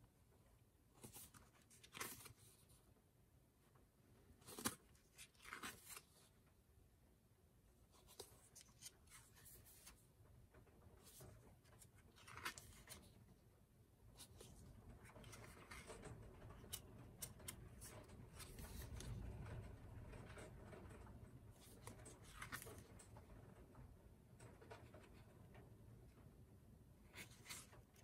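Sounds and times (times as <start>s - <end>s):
book pages turning: 1.0s - 2.8s, 4.3s - 6.4s, 7.9s - 10.1s, 11.0s - 13.2s, 14.1s - 19.1s, 21.6s - 22.9s, 27.0s - 28.0s.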